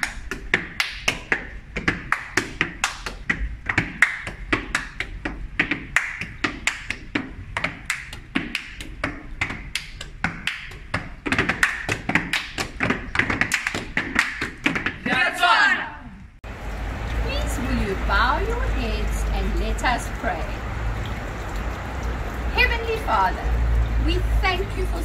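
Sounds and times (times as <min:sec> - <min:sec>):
hands slapping rubber boots: 0:00.0 - 0:15.2.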